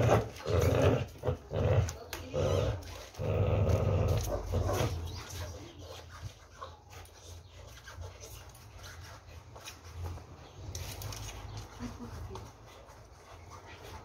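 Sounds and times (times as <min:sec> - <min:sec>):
dog growling: 0:00.0 - 0:05.2.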